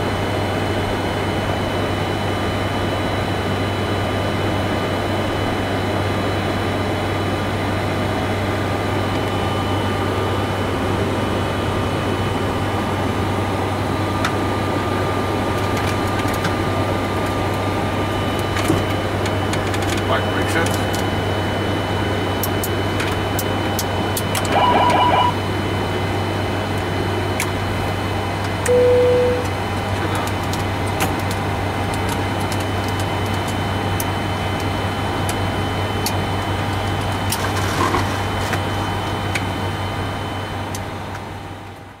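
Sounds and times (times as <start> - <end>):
cockpit hum: 22.4 - 25.9
pulsing electronic alert tone: 24.5 - 25.5
steady beep: 24.5 - 25.5, 28.7 - 29.5.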